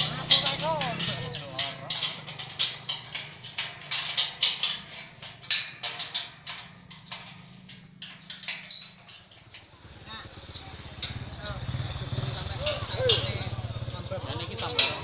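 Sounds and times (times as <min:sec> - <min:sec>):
metallic clicks and taps of tools: 0:00.0 - 0:09.7.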